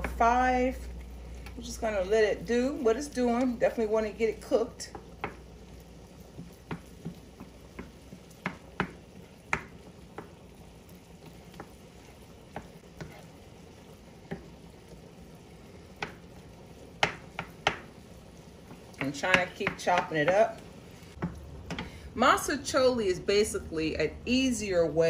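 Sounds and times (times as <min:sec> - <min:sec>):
meat sizzling: 0:00.0 - 0:23.0
wooden spatula scraping skillet: 0:11.2 - 0:13.5.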